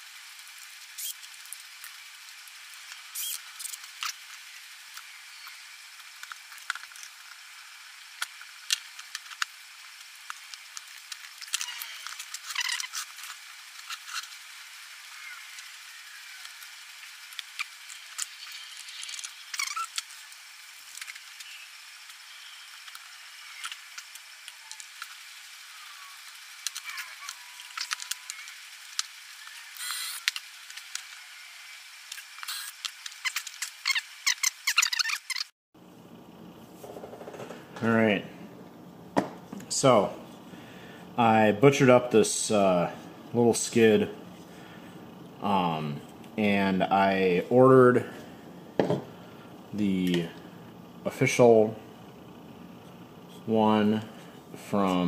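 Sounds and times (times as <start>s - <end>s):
steady hiss: 0.0s - 35.1s, 35.8s - 55.0s
short chirping squeaks: 1.0s - 1.2s, 3.2s - 3.8s, 18.4s - 20.0s, 32.5s - 35.5s.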